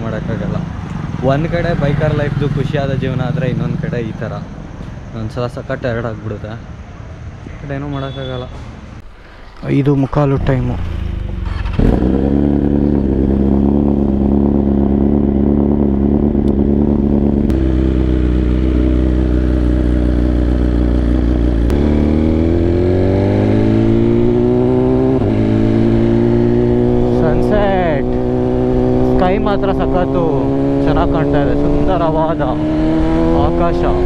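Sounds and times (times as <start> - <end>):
motorcycle engine accelerating: 9.2 - 34.0.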